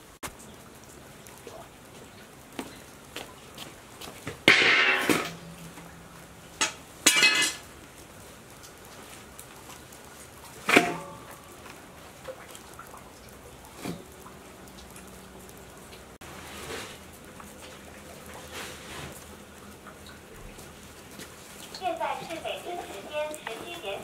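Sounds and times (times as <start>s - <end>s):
steel basin clanking on concrete: 4.4s - 7.7s, 10.6s - 11.8s.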